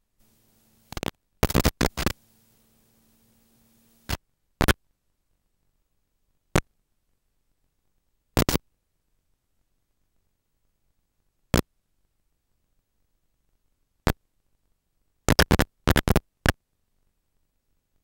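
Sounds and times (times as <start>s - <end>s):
faint low hum: 0.0s - 15.2s
radio static crackles: 0.2s - 4.8s.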